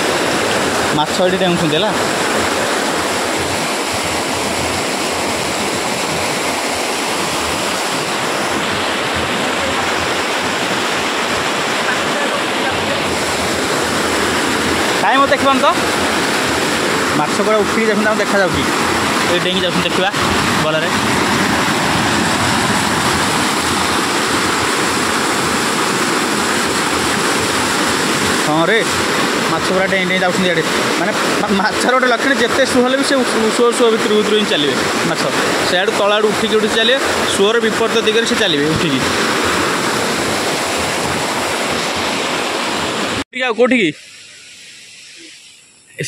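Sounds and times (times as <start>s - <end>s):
floodwater rushing through canal: 0.0s - 46.0s.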